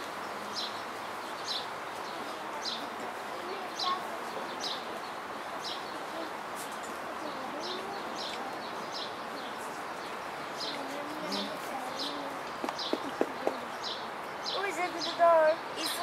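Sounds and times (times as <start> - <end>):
outdoor hiss: 0.0 - 16.0.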